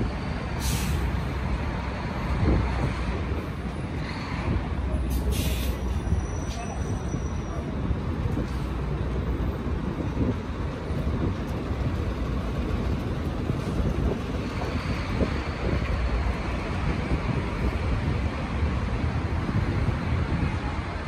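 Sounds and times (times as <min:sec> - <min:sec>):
passing vehicles rumbling: 0:00.0 - 0:21.0
hiss: 0:00.6 - 0:01.3, 0:05.1 - 0:06.0
wind on the microphone: 0:02.1 - 0:04.9, 0:07.7 - 0:21.0.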